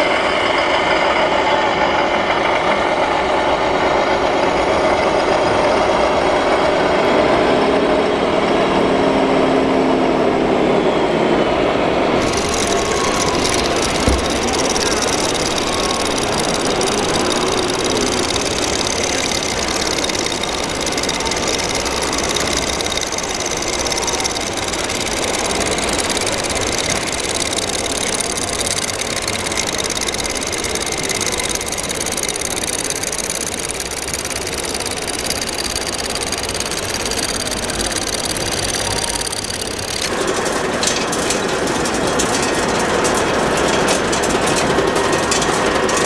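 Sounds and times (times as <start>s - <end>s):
toy truck engines running: 12.2s - 46.0s.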